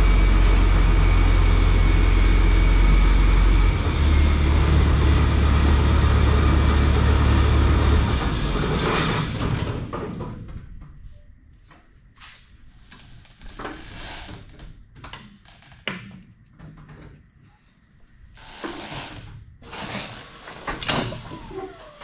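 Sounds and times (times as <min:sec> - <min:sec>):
tractor engine running: 0:00.0 - 0:09.7, 0:19.6 - 0:22.0.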